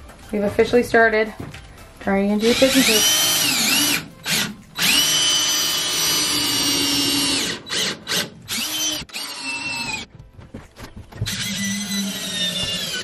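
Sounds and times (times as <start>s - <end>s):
cordless drill driving screws: 2.4s - 10.0s, 11.2s - 13.0s.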